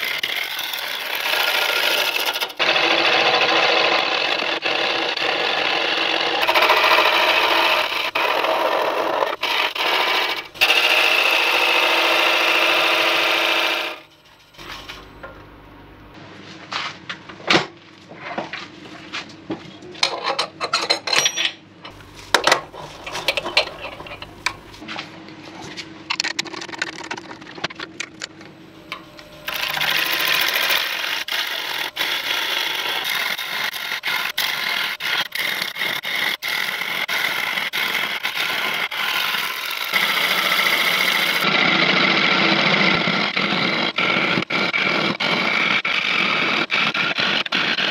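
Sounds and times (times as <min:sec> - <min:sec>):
gouge scraping wood on lathe: 0:00.0 - 0:15.2, 0:22.0 - 0:24.8, 0:29.4 - 0:41.5, 0:42.2 - 0:47.9.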